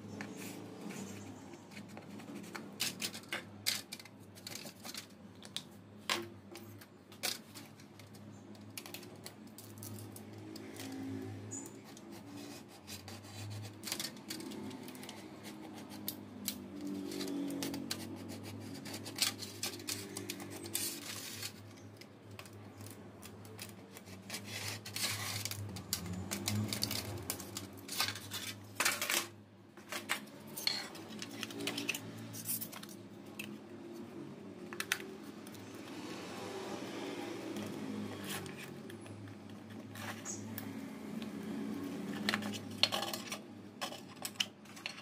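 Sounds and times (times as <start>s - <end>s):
foil crinkling and crackling: 1.7s - 5.7s, 6.6s - 33.4s.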